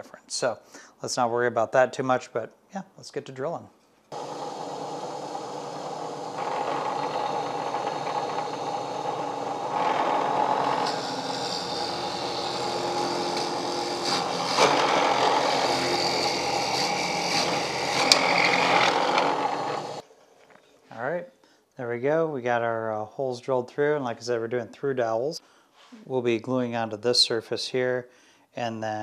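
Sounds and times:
drill press boring wood: 4.1 - 20.0.

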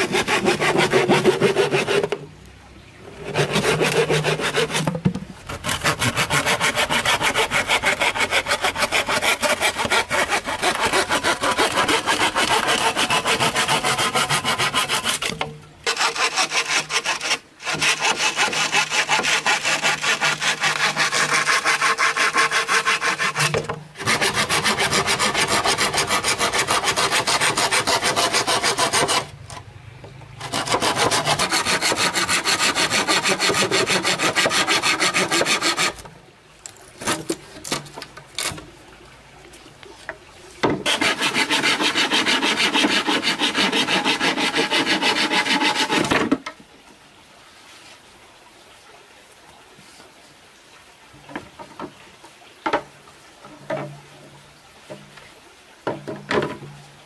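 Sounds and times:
hand saw cutting bamboo: 0.0 - 2.3, 3.1 - 29.6, 30.4 - 36.1, 37.0 - 38.6, 40.8 - 46.4.

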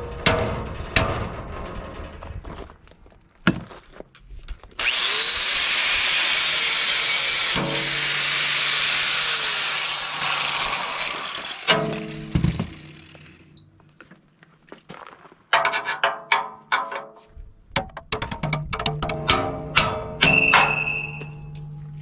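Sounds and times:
angle grinder grinding steel: 4.8 - 13.6.

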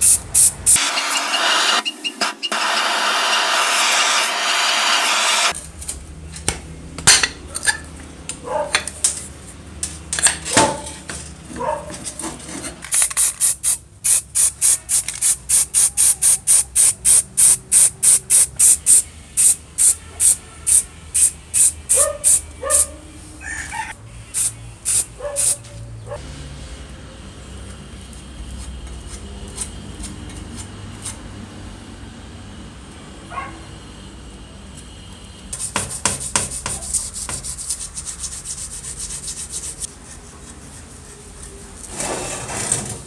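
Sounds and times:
spray can hissing bursts: 0.0 - 5.6, 12.9 - 22.8, 24.3 - 25.6.

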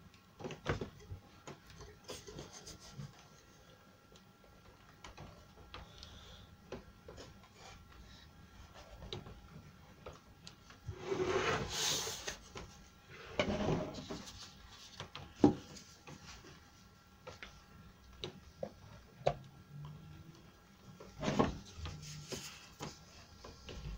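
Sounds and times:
wood rubbing and scraping: 10.9 - 16.6.

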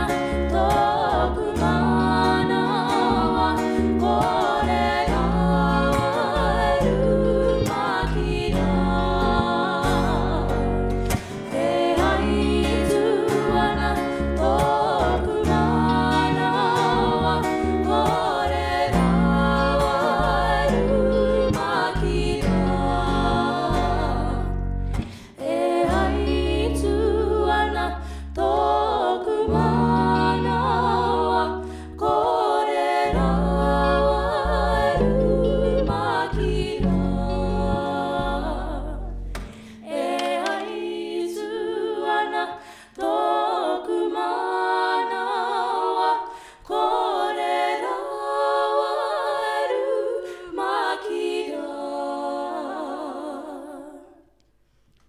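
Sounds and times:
bass guitar: 0.0 - 40.4
guitar: 0.0 - 51.5
women singing in harmony: 0.0 - 54.4.

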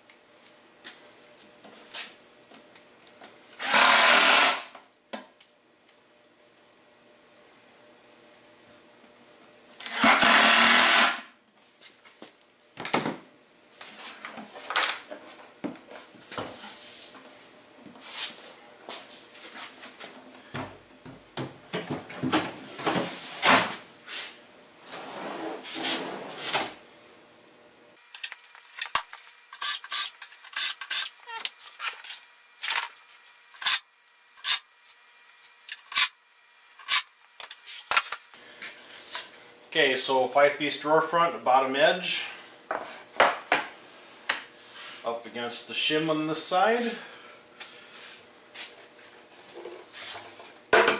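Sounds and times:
cordless drill drilling: 3.6 - 4.7, 9.8 - 11.2
wood and tools knocked on bench: 42.7 - 43.7.

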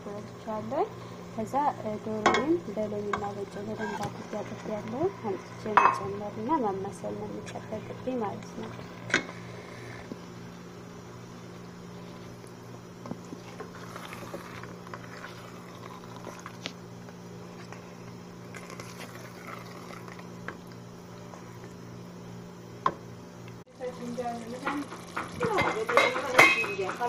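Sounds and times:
steady low hum: 0.0 - 27.0
sauce bubbling and squelching: 12.0 - 21.7, 24.2 - 25.6
wooden spoon knocking pot: 24.6 - 27.0.

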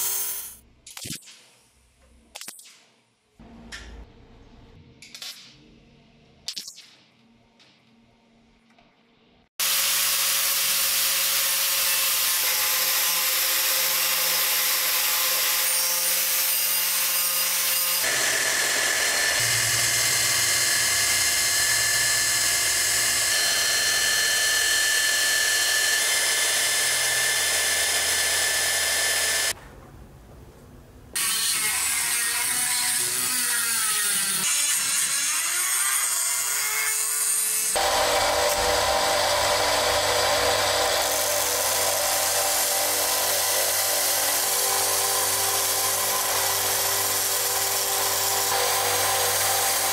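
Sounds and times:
small rotary tool grinding: 9.6 - 29.5, 37.7 - 49.9
angle grinder sanding steel: 37.7 - 49.9.

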